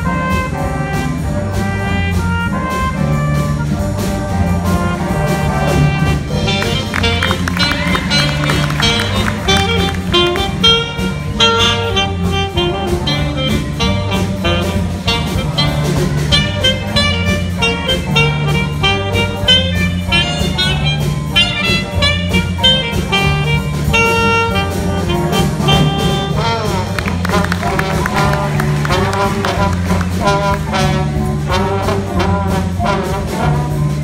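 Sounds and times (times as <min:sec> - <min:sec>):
jazz band playing swing: 0:00.0 - 0:34.0
saxophone solo: 0:00.0 - 0:34.0.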